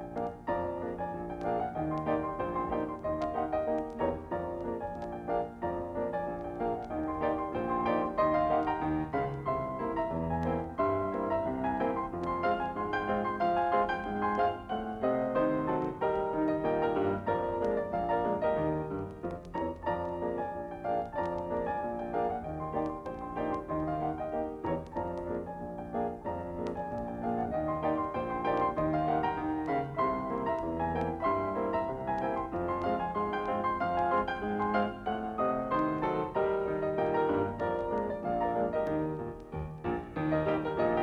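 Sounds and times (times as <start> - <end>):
piano music: 0.0 - 41.0.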